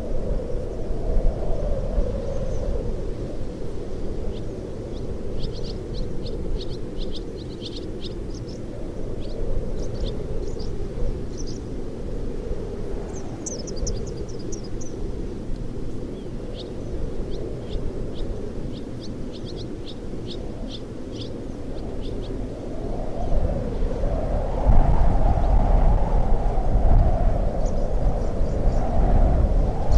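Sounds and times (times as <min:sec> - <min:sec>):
wind rushing through shack: 0:00.0 - 0:29.9
swallows chirping: 0:04.3 - 0:10.7, 0:11.3 - 0:11.6, 0:13.1 - 0:15.0, 0:16.2 - 0:22.4.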